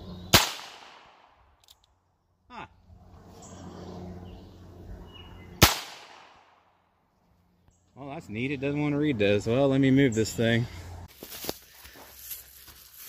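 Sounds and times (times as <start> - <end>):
revolver gunshots: 0.3 - 1.4, 5.6 - 6.7.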